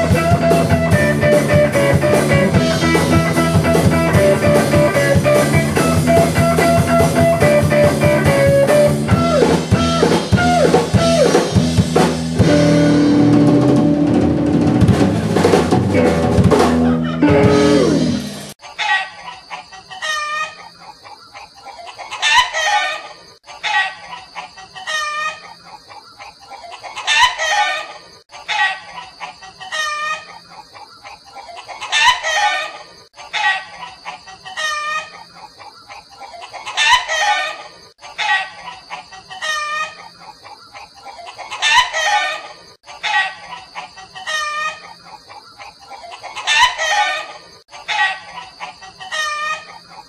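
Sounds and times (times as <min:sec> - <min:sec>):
chicken clucking: 0:16.8 - 0:50.0.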